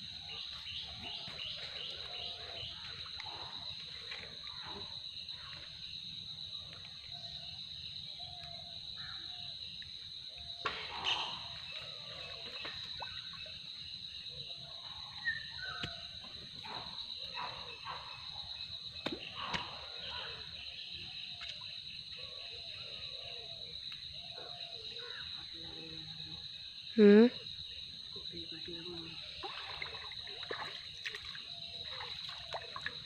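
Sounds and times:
river ambience: 28.1 - 33.0
cast net splashing in water: 29.4 - 33.0.

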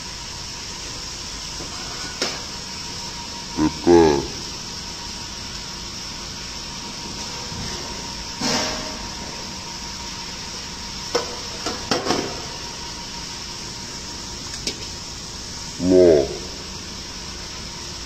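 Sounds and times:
background hiss and hum: 0.0 - 18.0.

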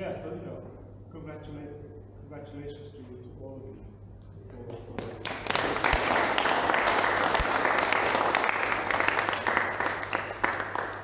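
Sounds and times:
crowd applauding: 5.0 - 11.0.

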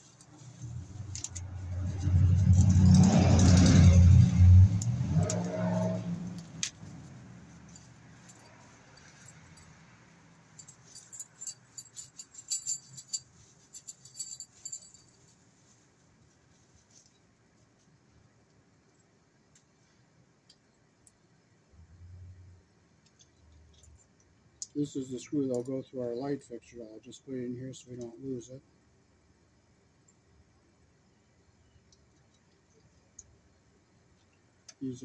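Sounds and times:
vehicle passing: 0.6 - 10.0.

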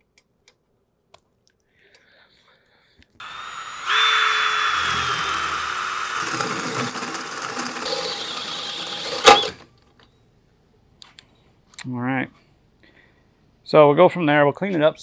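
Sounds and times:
drill hole saw squealing: 3.2 - 9.6.

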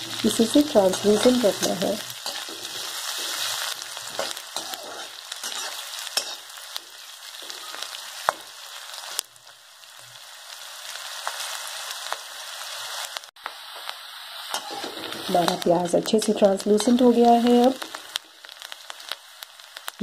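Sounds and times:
onions sizzling in oil: 0.0 - 20.0
spatula scraping a pan: 0.2 - 8.5, 14.5 - 15.6.

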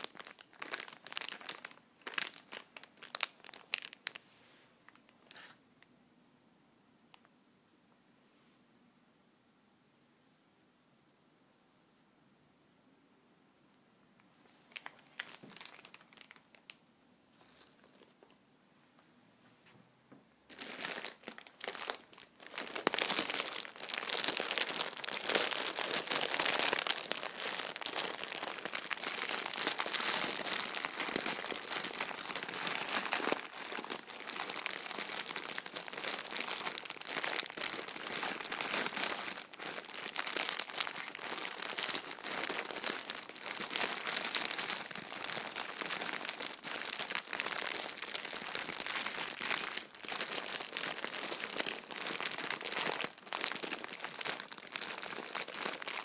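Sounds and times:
packaging crinkling: 0.0 - 4.2, 14.7 - 18.4, 20.5 - 56.0.

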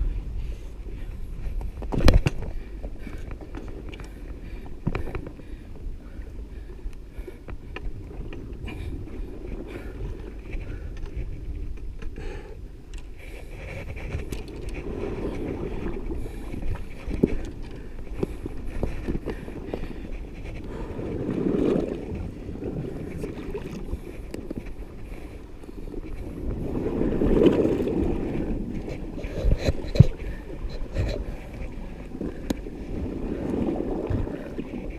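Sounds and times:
wind rumble on microphone: 0.0 - 34.9
waves washing against rock: 13.5 - 34.9.

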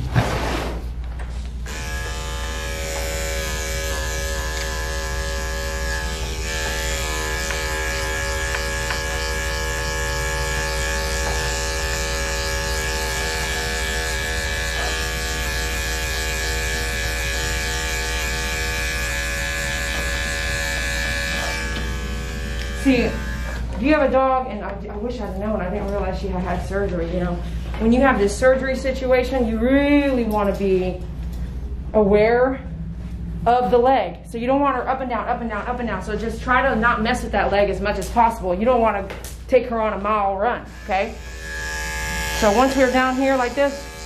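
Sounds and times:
electric clippers buzzing: 1.6 - 23.8, 40.6 - 44.0.

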